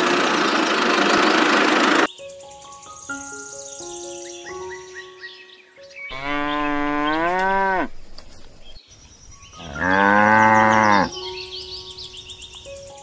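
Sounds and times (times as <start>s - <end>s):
cow mooing: 6.1s - 7.9s, 9.6s - 11.2s.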